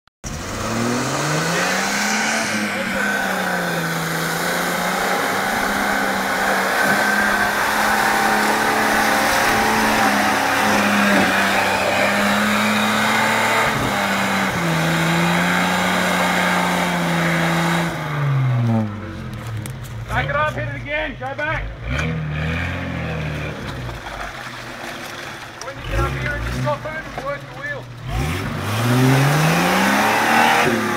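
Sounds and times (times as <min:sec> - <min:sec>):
engine revving under load: 0:00.2 - 0:19.3, 0:21.6 - 0:24.1, 0:27.9 - 0:30.9.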